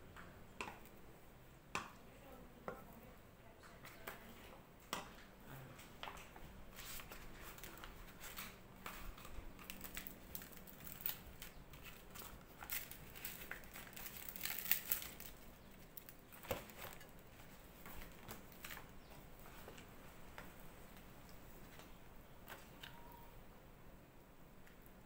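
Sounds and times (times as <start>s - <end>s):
leaves rustling and crinkling: 6.7s - 23.1s.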